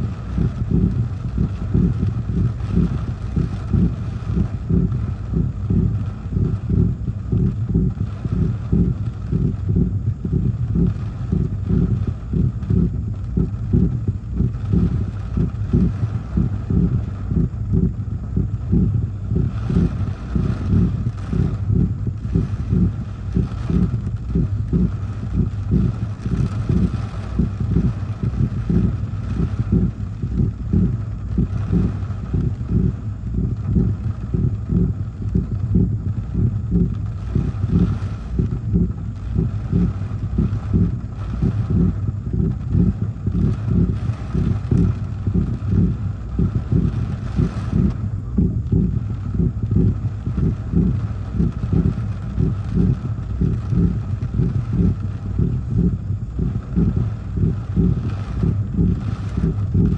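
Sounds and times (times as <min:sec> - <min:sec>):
wind and rain buffeting a car: 0:00.0 - 0:59.9.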